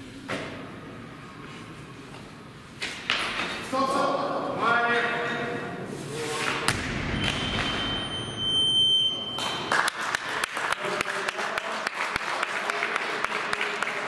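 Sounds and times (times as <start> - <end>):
electronic buzzer tone: 7.1 - 9.6
applause: 9.7 - 14.0.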